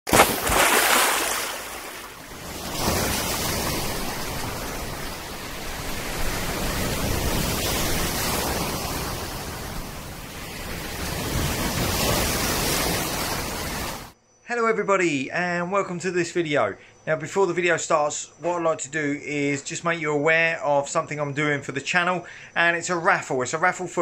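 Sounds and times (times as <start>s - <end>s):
sea waves breaking: 0.1s - 14.2s.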